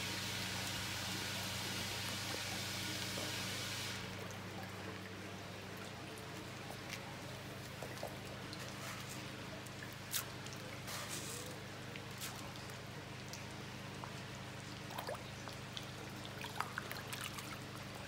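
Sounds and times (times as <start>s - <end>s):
water rushing in fish tank: 0.0s - 18.0s
low steady hum: 3.9s - 18.0s.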